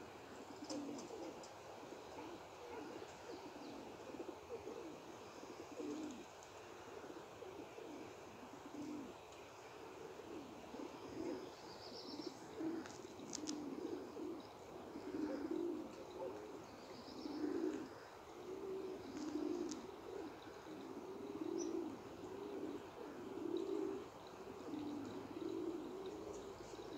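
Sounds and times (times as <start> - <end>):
pigeons cooing: 0.0 - 26.9.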